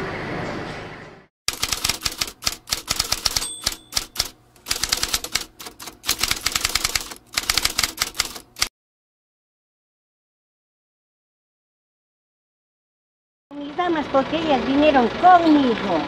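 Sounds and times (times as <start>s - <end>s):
typewriter bell ding: 1.5s - 8.4s
typewriter keys clacking: 1.5s - 8.7s.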